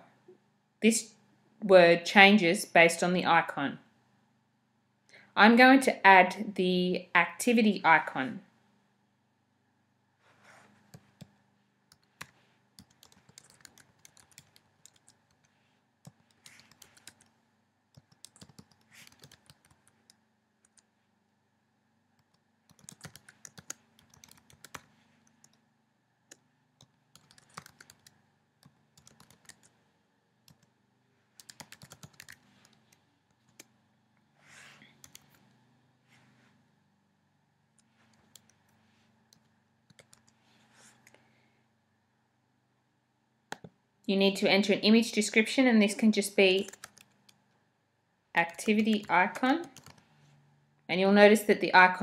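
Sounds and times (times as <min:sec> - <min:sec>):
typing on keyboard: 0:11.9 - 0:20.9, 0:22.2 - 0:25.6, 0:26.3 - 0:29.8, 0:31.4 - 0:33.7, 0:35.0 - 0:35.4, 0:39.3 - 0:40.4, 0:46.6 - 0:47.4, 0:48.4 - 0:50.0.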